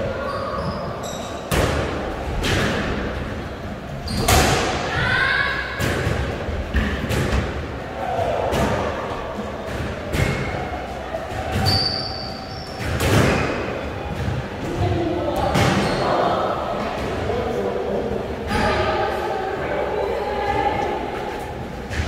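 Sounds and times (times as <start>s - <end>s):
high squeak: 11.6s - 12.8s.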